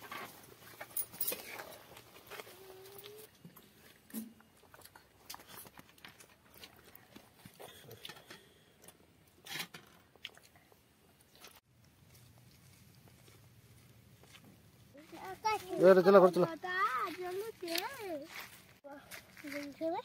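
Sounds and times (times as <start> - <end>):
people chewing food: 1.5 - 15.4.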